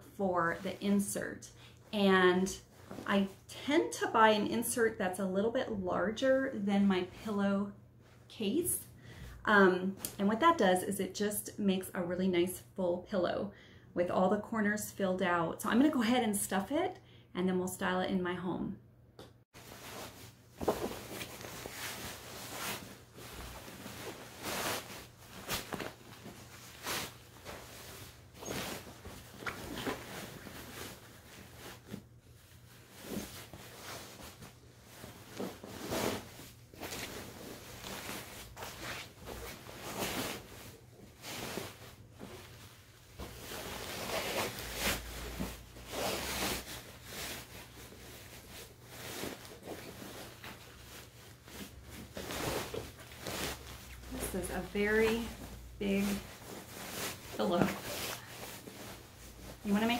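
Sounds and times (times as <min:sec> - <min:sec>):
cloth rustling and swishing: 0:19.5 - 0:59.9.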